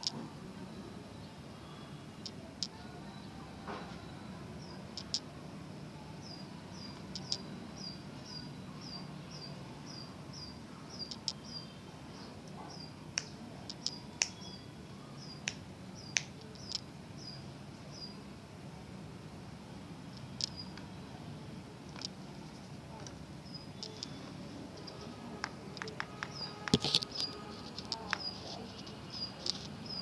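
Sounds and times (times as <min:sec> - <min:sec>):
sharp clicks: 0:05.0 - 0:05.3, 0:07.0 - 0:07.5, 0:11.0 - 0:11.5, 0:13.2 - 0:14.4, 0:24.8 - 0:30.0
small bird chirping: 0:06.0 - 0:18.3, 0:20.2 - 0:20.8, 0:23.4 - 0:30.0.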